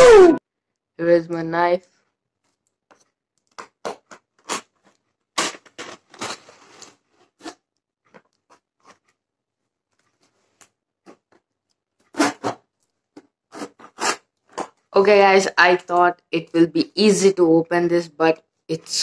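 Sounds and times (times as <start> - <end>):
cardboard scraping: 3.9 - 7.6
utility knife cutting packing tape: 5.4 - 6.4, 12.1 - 12.6, 13.5 - 14.7
tape being pulled by hand: 12.0 - 12.7, 13.5 - 14.8.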